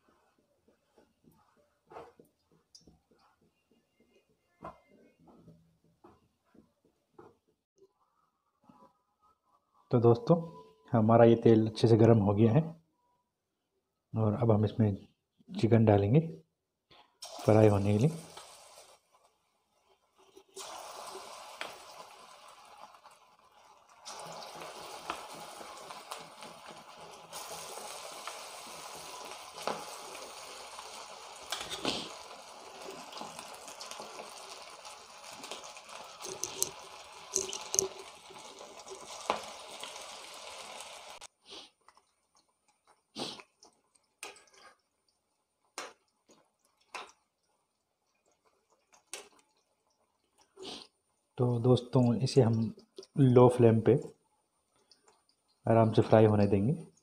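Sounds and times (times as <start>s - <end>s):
chicken deep-frying in oil: 17.2s - 54.0s.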